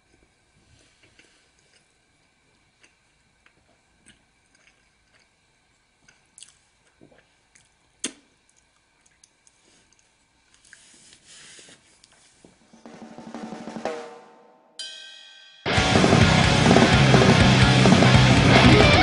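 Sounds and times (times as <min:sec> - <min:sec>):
chewing and mouth noises: 0:00.8 - 0:10.9
soft rustle: 0:09.5 - 0:12.8
loud music with drums: 0:12.9 - 0:14.4, 0:15.7 - 0:19.0.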